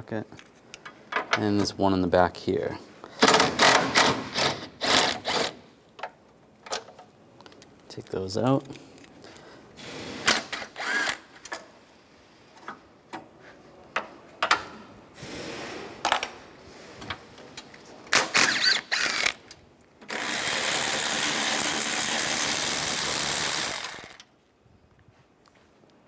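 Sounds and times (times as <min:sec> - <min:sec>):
power tool running: 0:09.8 - 0:11.3, 0:20.0 - 0:24.3.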